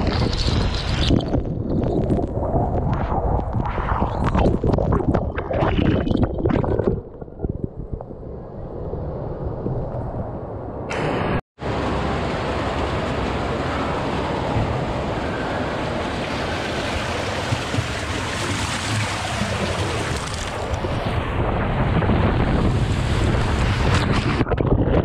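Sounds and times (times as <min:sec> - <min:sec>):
wind on microphone: 0:00.0 - 0:11.4, 0:12.8 - 0:25.0
water rushing along a slide: 0:10.9 - 0:25.0.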